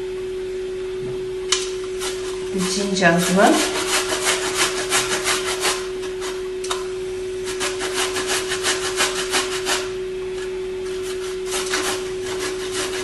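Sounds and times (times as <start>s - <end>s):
steady hum: 0.0s - 13.0s
ginger grating on metal grater: 2.0s - 6.4s, 7.5s - 10.0s, 10.8s - 13.0s.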